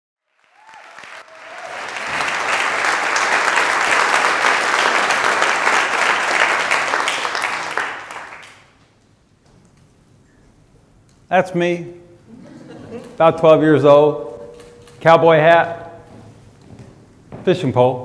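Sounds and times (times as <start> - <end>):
audience applauding: 0.2 - 8.8.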